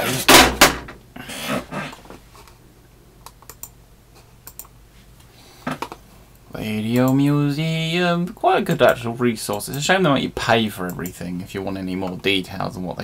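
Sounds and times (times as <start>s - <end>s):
computer keyboard typing: 3.2s - 3.8s, 4.4s - 4.7s
mouse clicks: 3.2s - 3.8s, 4.4s - 4.8s.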